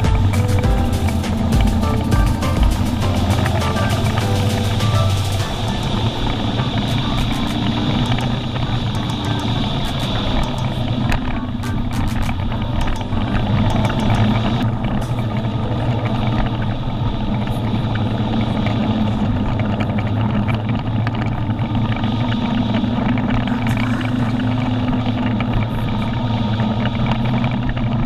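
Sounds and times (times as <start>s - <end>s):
motorcycle engine running: 0.0s - 28.0s
road noise: 0.0s - 28.0s.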